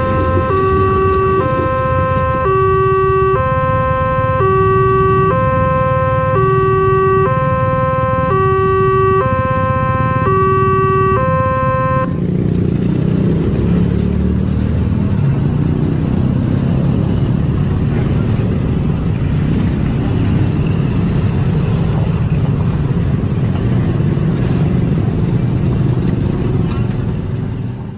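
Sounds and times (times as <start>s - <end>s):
two-tone crossing warning bell: 0.0s - 13.5s
cars and scooters driving past: 0.0s - 27.9s.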